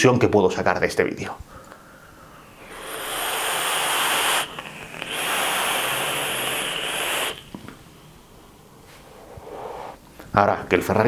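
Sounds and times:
vapour exhaled breathy hiss: 0:01.5 - 0:10.1.

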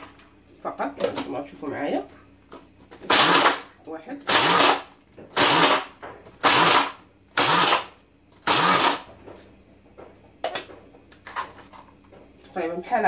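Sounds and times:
electric chopper crushing biscuits: 0:03.0 - 0:03.7, 0:04.3 - 0:09.1.

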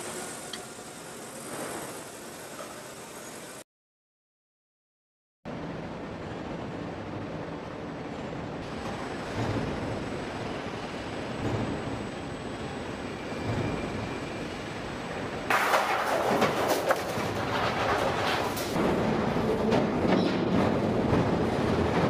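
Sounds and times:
factory machinery noise: 0:00.0 - 0:03.6, 0:05.5 - 0:22.0
metallic clattering and banging: 0:15.5 - 0:22.0.

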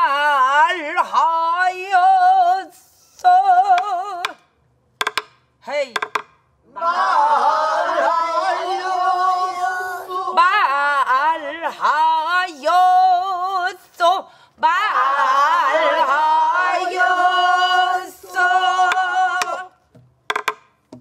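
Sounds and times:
woman singing with wavering vibrato: 0:00.0 - 0:04.4, 0:08.8 - 0:19.8
sharp knocks: 0:03.8 - 0:06.4, 0:18.9 - 0:21.0
group of voices singing: 0:06.7 - 0:13.8, 0:14.6 - 0:19.8.

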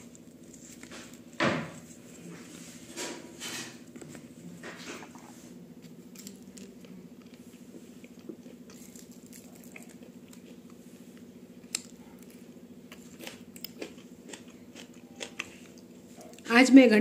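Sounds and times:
steady low hum: 0:00.0 - 0:17.0
person chewing: 0:05.0 - 0:16.4
crunch of onion bitten: 0:05.8 - 0:15.9.

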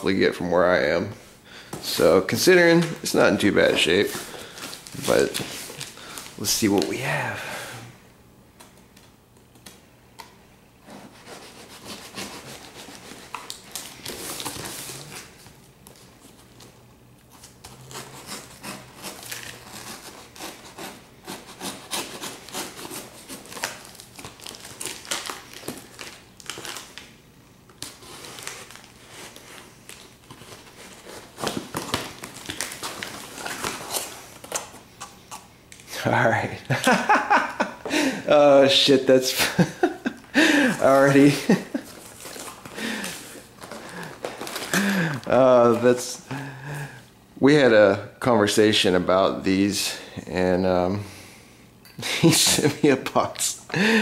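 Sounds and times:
tape crinkling and tearing: 0:02.7 - 0:07.0, 0:11.2 - 0:34.8, 0:40.8 - 0:46.1
knife slicing tape and cardboard: 0:17.9 - 0:23.7.

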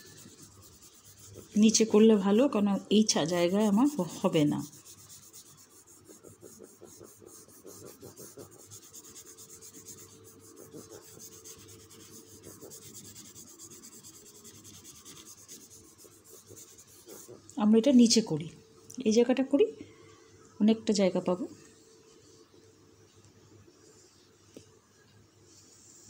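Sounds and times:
hand rubbing whiteboard: 0:00.0 - 0:02.5, 0:03.1 - 0:17.5.

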